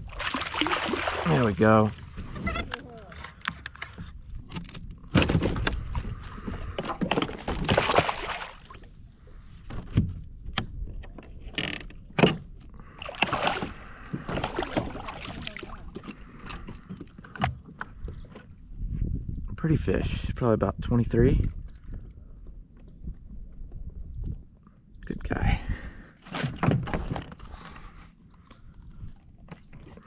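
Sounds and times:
water splashing against kayak: 0.0 - 4.2, 5.2 - 10.0, 12.8 - 17.8.

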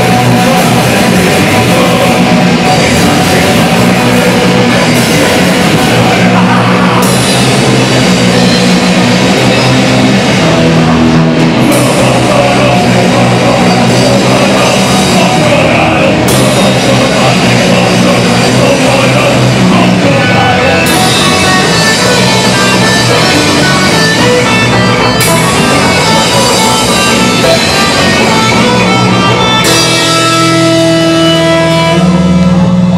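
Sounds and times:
rock band playing: 0.0 - 32.9
cymbal crash: 3.7 - 12.2.

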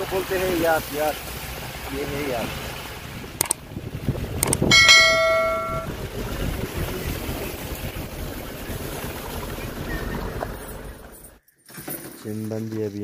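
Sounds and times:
vehicle engine and road rumble: 0.0 - 11.4
clicks: 4.4 - 5.9
short pitched ringing tone: 4.7 - 6.0.

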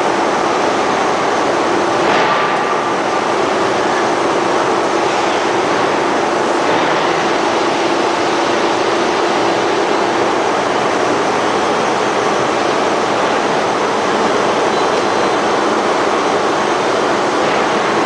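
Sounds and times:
rolling mill mechanical rush: 0.0 - 18.0
steady hum: 0.0 - 18.0.

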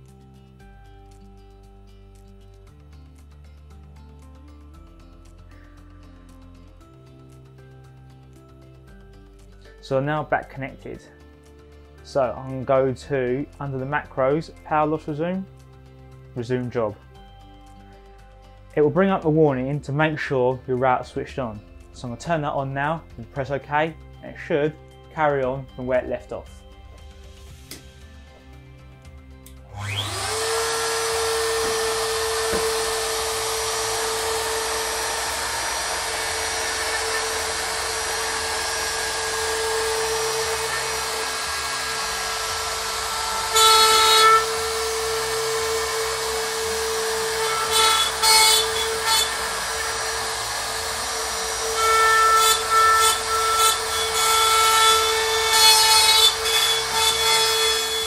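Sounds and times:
router bit cutting wood: 29.7 - 58.0
router spindle motor whine: 29.7 - 58.0.

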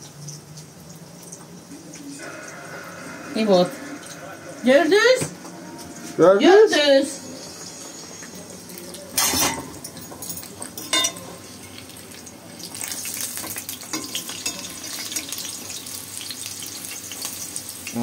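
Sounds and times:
pastries sizzling in hot oil: 0.0 - 18.0
forks clinking on pan: 9.1 - 11.9, 12.7 - 15.8.

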